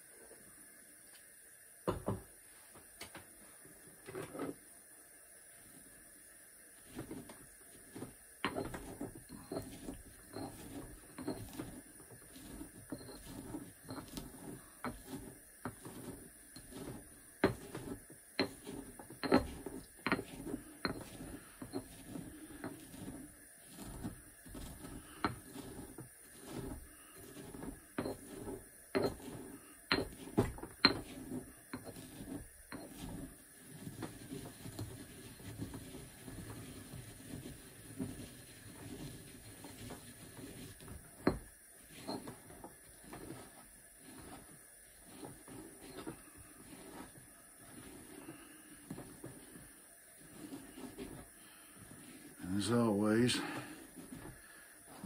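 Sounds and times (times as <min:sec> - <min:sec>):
pestle grinding in a mortar: 0:06.8 - 0:55.0
pestle clinking against bowl: 0:16.6 - 0:22.0, 0:29.0 - 0:32.1.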